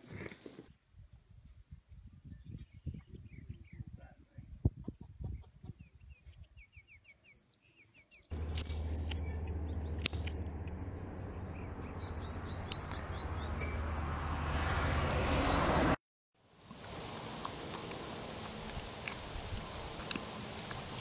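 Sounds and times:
bird chirping: 5.2 - 14.6
outdoor rushing noise with low hum: 8.3 - 15.2.

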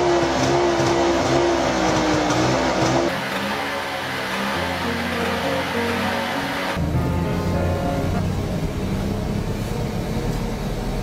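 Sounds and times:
background music: 3.1 - 8.7.

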